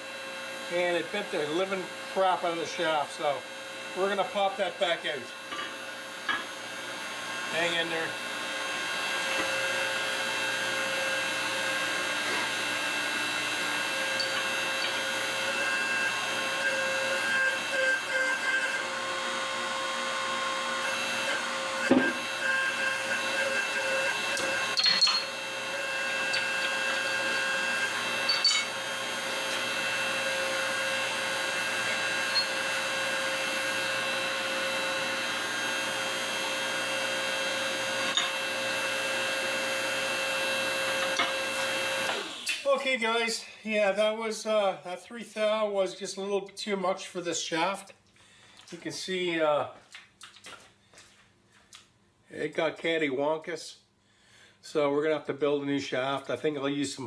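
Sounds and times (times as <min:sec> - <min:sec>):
metallic clinks and knocks: 0:28.3 - 0:28.7.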